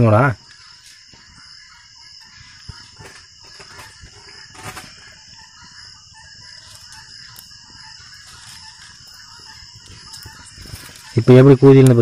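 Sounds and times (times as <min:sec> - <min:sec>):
high-pitched hum: 0:00.2 - 0:12.0
sticks and straw rustling: 0:06.6 - 0:12.0.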